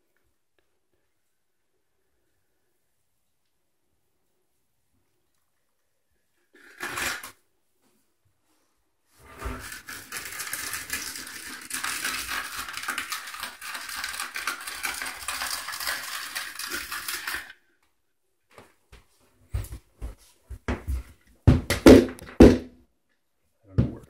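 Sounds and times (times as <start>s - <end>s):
smoother scraping wet floor compound: 8.5s - 17.6s.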